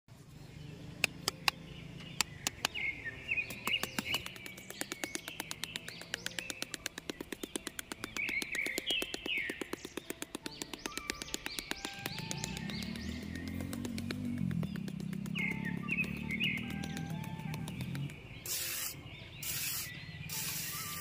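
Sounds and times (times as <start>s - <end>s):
birds chirping: 0.1s - 21.0s
metal trowel clicking on sand: 3.5s - 15.2s, 16.1s - 21.0s.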